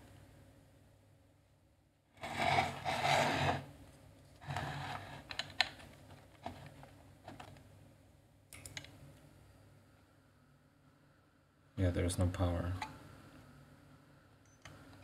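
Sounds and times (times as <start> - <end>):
hard drive sliding and scraping: 2.2 - 3.7, 4.4 - 5.3.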